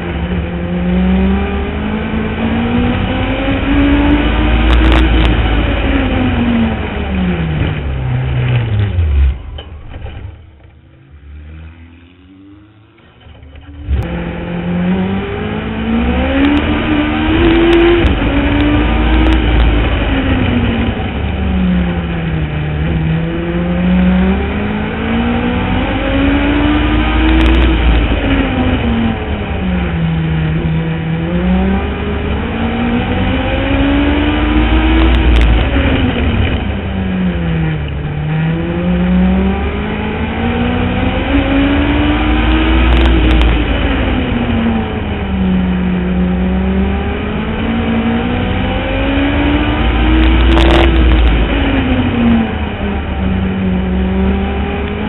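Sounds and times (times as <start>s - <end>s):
motorcycle engine racing: 0.0s - 55.0s.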